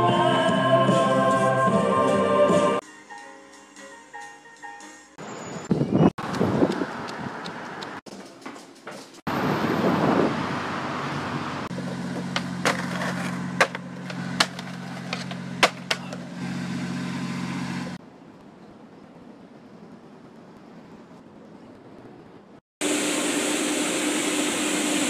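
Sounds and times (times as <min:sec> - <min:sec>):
street noise: 0:04.4 - 0:22.6
wind: 0:05.1 - 0:25.0
skateboard clacks on concrete: 0:11.8 - 0:16.2.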